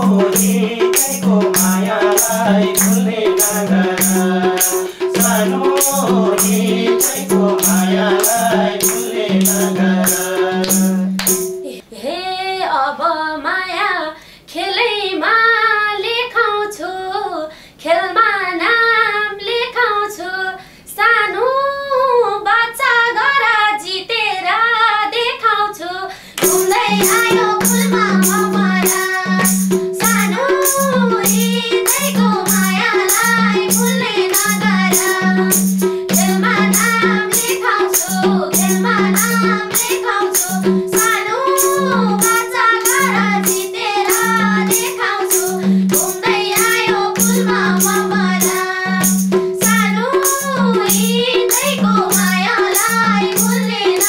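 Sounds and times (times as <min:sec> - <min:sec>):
hand drum beat: 0:00.0 - 0:11.7, 0:26.4 - 0:54.0
instrumental accompaniment: 0:00.0 - 0:11.9, 0:26.4 - 0:54.0
women singing folk song: 0:00.0 - 0:54.0.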